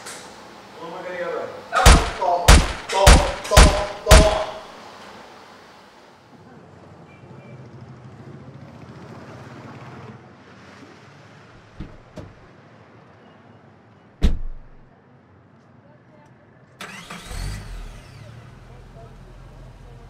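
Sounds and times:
light knocks: 11.8s - 12.5s
car door slamming: 14.2s - 14.9s.

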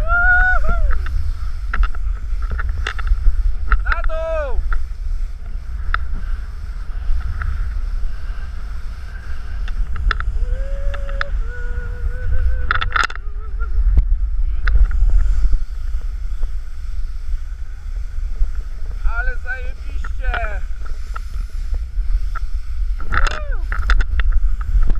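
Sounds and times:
snowboard hissing through snow: 0.0s - 24.9s
wind buffeting microphone: 0.0s - 24.9s
wavering vocal call: 10.3s - 13.9s.

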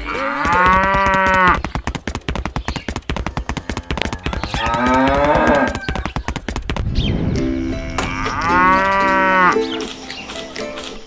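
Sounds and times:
cow mooing: 0.0s - 1.6s, 4.6s - 5.8s, 7.4s - 9.8s
fast run of clicks: 0.0s - 7.4s, 8.0s - 11.0s.

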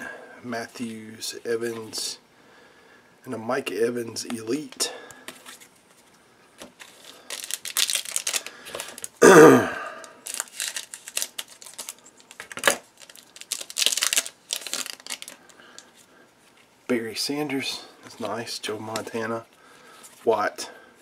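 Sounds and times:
foil pack crinkling: 6.7s - 9.2s, 10.0s - 15.9s.

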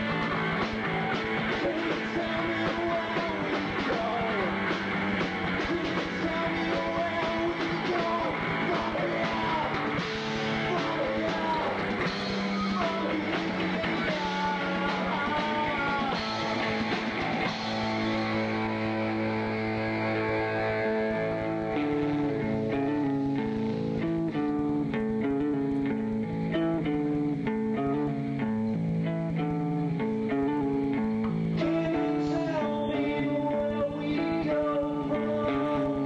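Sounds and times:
bass guitar: 0.0s - 36.0s
drums: 0.0s - 36.0s
electric guitar: 0.0s - 36.0s
singer singing into microphone: 1.4s - 17.2s, 31.5s - 36.0s.

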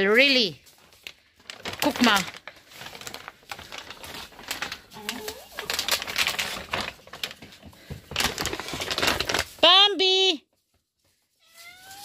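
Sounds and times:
rustling and scuffing: 0.0s - 1.4s, 10.5s - 12.0s.

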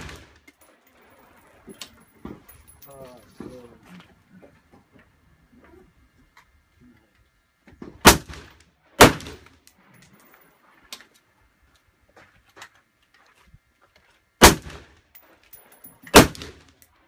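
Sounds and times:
rifle shots with echo: 8.0s - 9.5s, 14.4s - 14.9s, 16.1s - 16.7s.

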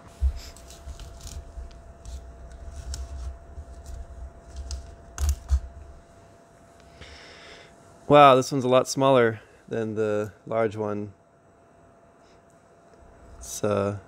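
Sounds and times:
cardboard rustling and clicking: 0.2s - 5.7s.

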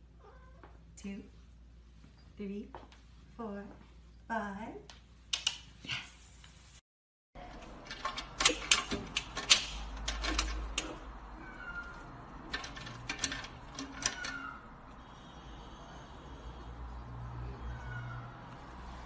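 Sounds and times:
wire cage rattling and clicking: 7.4s - 11.4s, 12.4s - 14.6s.

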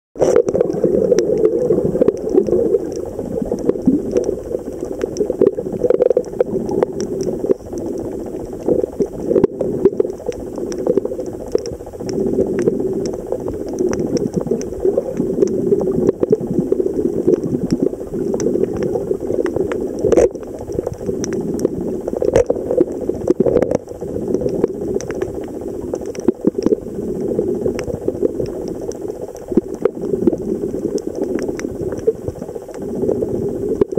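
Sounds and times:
muffled underwater wash: 0.2s - 33.9s
sharp clicks: 10.0s - 16.4s.

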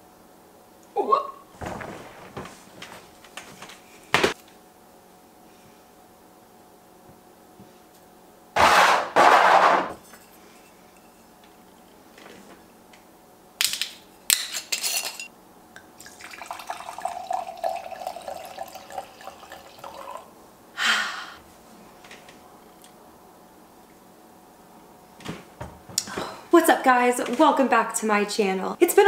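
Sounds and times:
wine pouring into a glass: 16.0s - 20.3s.

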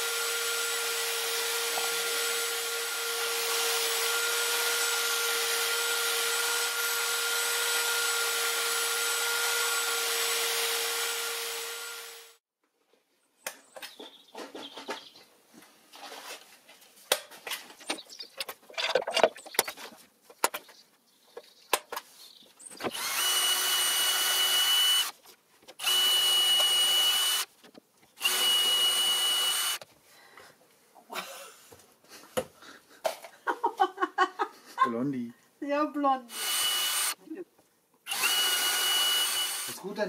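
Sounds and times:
cordless drill boring wood: 0.0s - 12.4s, 22.8s - 25.2s, 25.8s - 27.5s, 28.2s - 29.8s, 36.3s - 37.2s, 38.1s - 40.0s
taps and scrapes on wood: 13.4s - 23.0s.

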